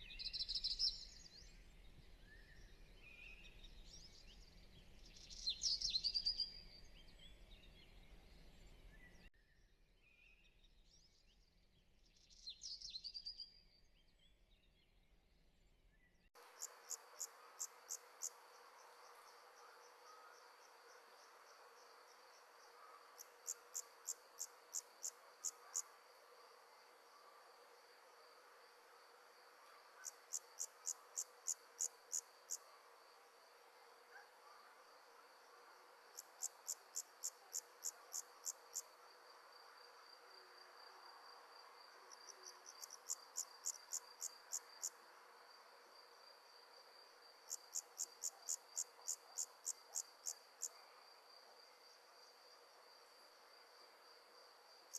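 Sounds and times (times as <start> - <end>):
insect chirping: 16.4 - 54.9.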